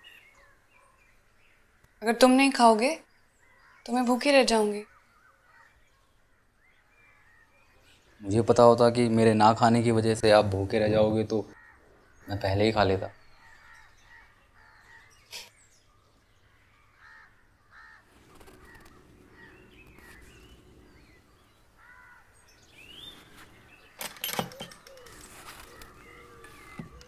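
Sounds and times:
small birds chirping: 0.0 - 27.0
crows cawing: 3.4 - 4.0, 4.8 - 7.6, 11.5 - 15.3, 16.5 - 22.7, 24.8 - 27.0.

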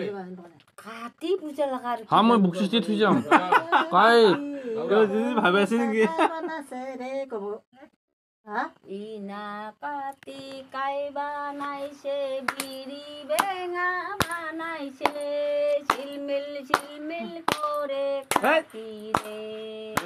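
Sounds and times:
woman singing a folk song: 6.1 - 7.9, 8.5 - 20.0
hand claps: 12.4 - 14.4, 15.0 - 20.0.

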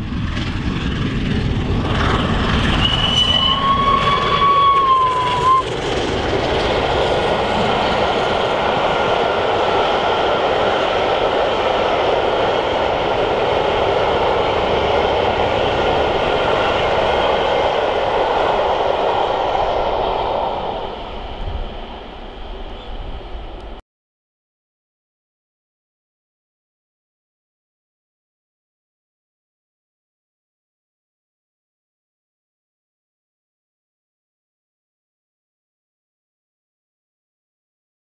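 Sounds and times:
steam locomotive exhaust: 0.0 - 23.8
coaches rumbling and clattering: 5.3 - 18.8.

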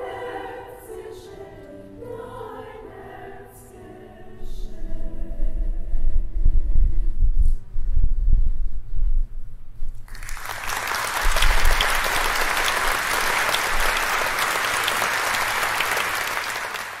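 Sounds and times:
low rumble: 4.9 - 10.1
audience applause: 10.1 - 17.0.

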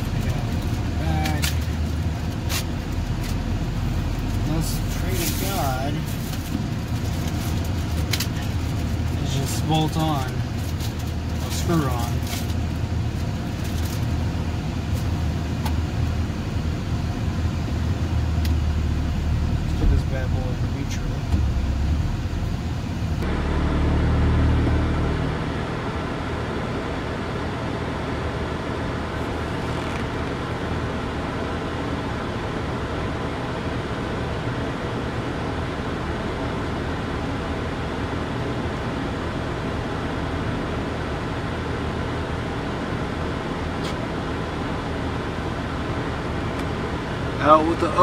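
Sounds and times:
car engine idling: 0.0 - 48.0
low rumble: 17.8 - 26.9.

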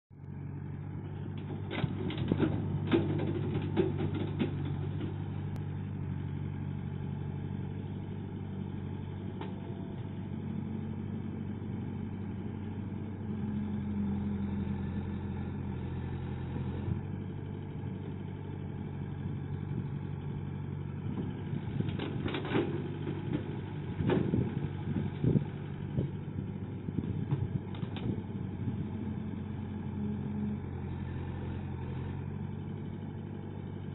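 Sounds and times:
excavator diesel engine running: 0.1 - 33.9
excavator bucket knocking and clatter: 1.3 - 5.3, 21.2 - 26.1.

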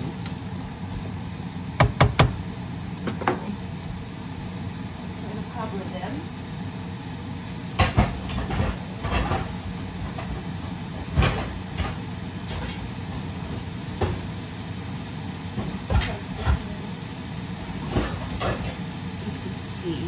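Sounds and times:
steady low hum: 0.0 - 20.0
pans and lids clattering: 7.8 - 10.4, 11.0 - 12.9, 15.6 - 16.7, 17.8 - 18.9.

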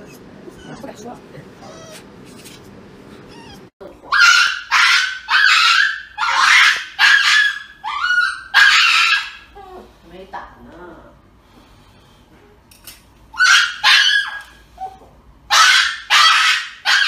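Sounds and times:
small dog yelping: 0.5 - 0.9, 1.6 - 2.0, 3.3 - 9.5, 13.3 - 17.0.

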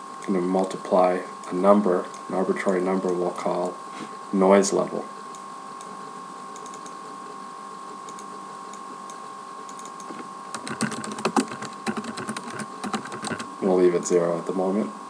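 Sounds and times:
electrical hum: 0.0 - 15.0
keyboard typing: 6.6 - 7.0, 9.7 - 13.6.

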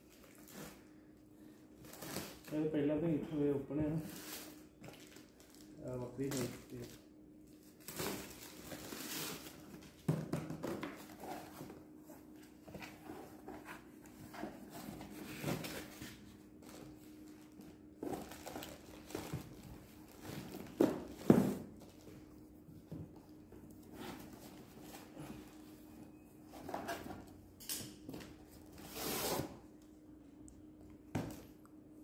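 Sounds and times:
packaging rustling and scraping: 4.0 - 10.0, 10.6 - 22.3.

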